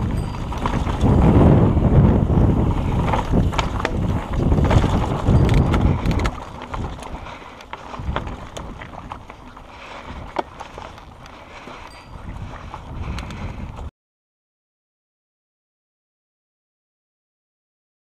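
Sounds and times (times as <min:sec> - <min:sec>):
bike rattling over stones: 0:00.0 - 0:13.9
wind buffeting microphone: 0:00.0 - 0:13.9.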